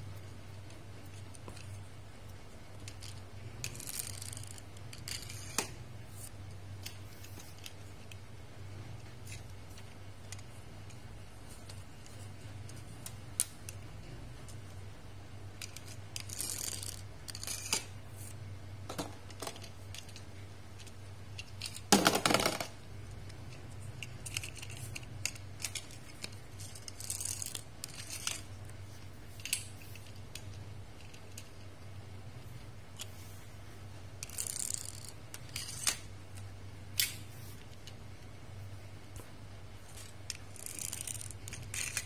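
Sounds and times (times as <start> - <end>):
faint low hum: 0.0 - 42.0
toy cars rattling: 2.8 - 5.6, 15.6 - 17.9, 24.0 - 28.5, 34.2 - 36.1, 39.9 - 42.0
toy cars clicking on a table: 34.2 - 36.1.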